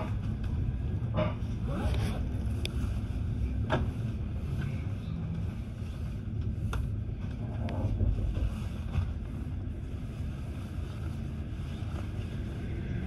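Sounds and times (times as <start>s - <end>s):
train carriage rumble: 0.0s - 13.0s.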